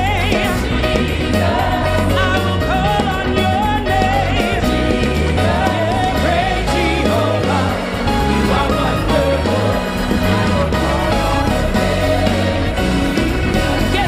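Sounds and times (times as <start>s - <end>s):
gospel band playing: 0.0s - 14.0s
singers with vibrato: 5.4s - 14.0s.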